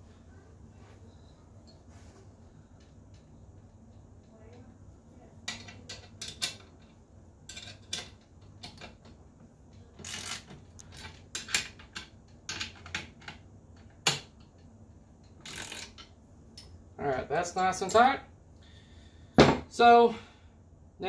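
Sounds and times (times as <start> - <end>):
hand ratchet clicking: 10.0 - 11.6, 15.4 - 16.1.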